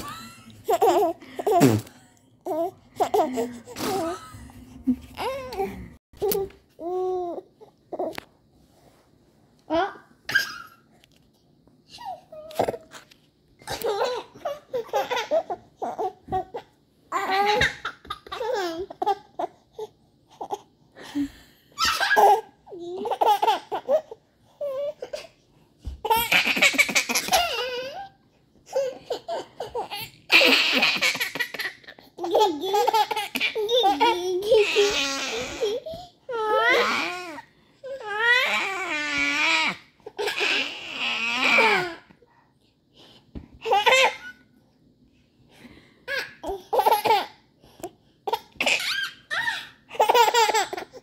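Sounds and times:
baby and toddler laughing: 0:00.0 - 0:01.9, 0:13.6 - 0:19.5, 0:21.8 - 0:24.2, 0:26.0 - 0:28.1, 0:28.7 - 0:37.3, 0:48.3 - 0:51.0.

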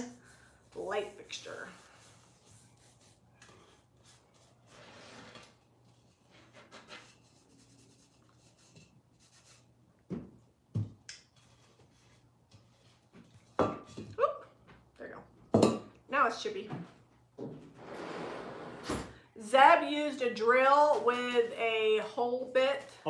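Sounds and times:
cloth rag rubbing metal: 0:00.0 - 0:03.2.

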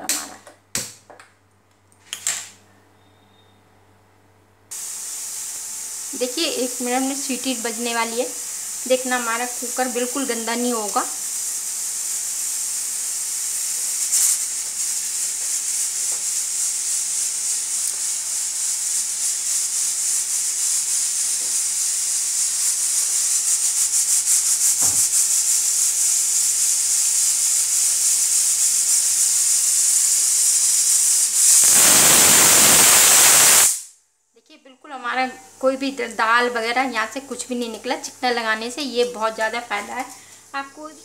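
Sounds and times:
pressure cooker whistle: 0:03.0 - 0:03.6, 0:24.9 - 0:34.0
pressure cooker hissing: 0:04.7 - 0:34.0, 0:35.0 - 0:41.0.

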